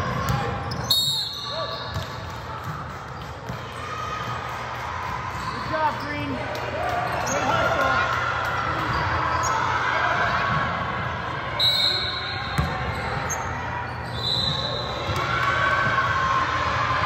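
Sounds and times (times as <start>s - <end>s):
voices in a hall: 0.0s - 17.0s
basketball dribbling: 12.6s - 13.3s.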